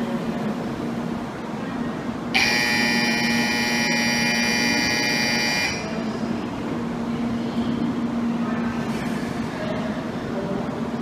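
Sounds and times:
steady low hum: 0.0 - 11.0
platform departure buzzer: 2.4 - 6.0.

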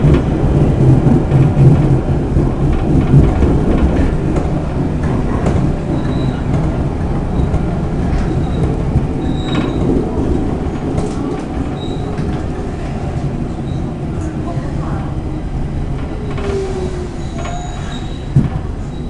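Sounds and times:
train wheels rumbling: 0.0 - 19.0
high wheel squeals: 5.8 - 6.5, 16.2 - 19.0.

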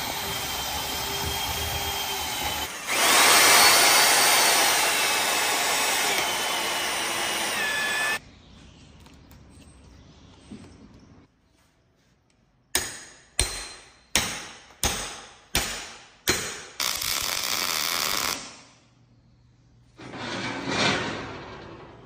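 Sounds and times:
hammer striking steel: 12.7 - 16.8
welder arc crackling: 16.8 - 18.6.

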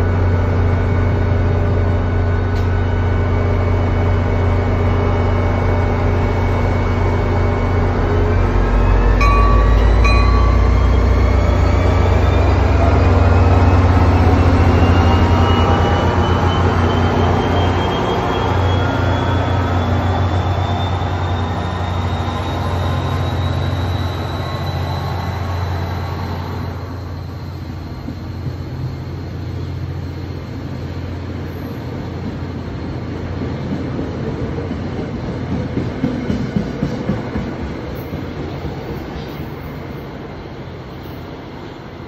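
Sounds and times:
diesel locomotive engine drone: 0.0 - 42.0
train wheels rumbling: 0.0 - 42.0
thin high whine: 6.5 - 25.4.

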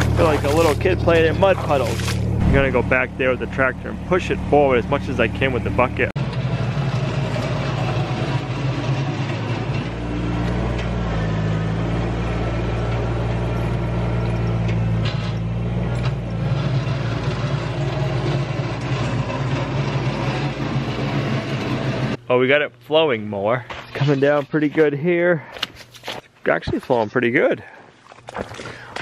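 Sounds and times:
tractor engine running: 0.0 - 22.9.

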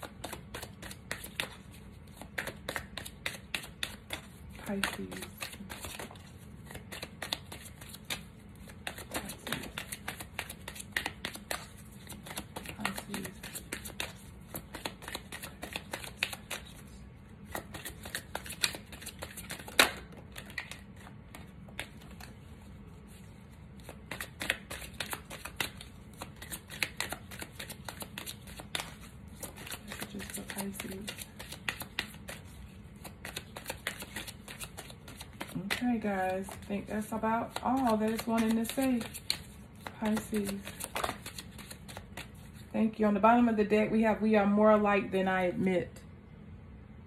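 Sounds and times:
cards being shuffled: 0.0 - 42.7
card snap: 37.5 - 41.4.

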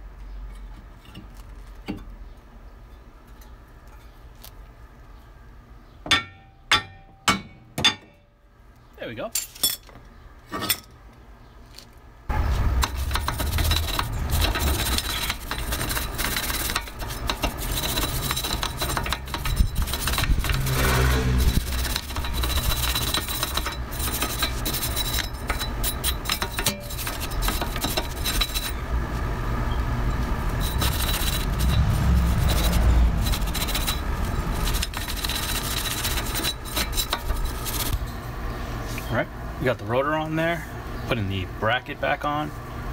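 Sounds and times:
wire brush scraping rusty metal: 12.3 - 29.3, 30.0 - 39.1.

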